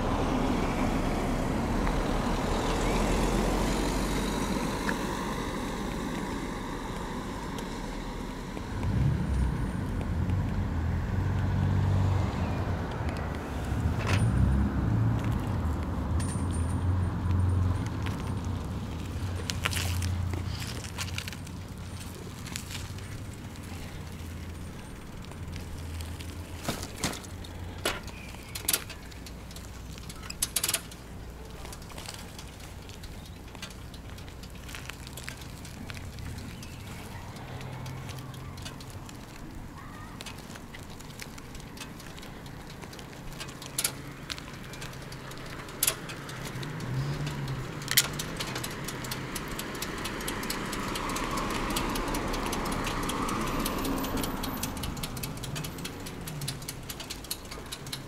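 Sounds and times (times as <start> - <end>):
motor traffic: 0.0 - 58.0
rumble of bicycle tyres: 0.0 - 58.0
bicycle clicks and rattles: 12.5 - 58.0.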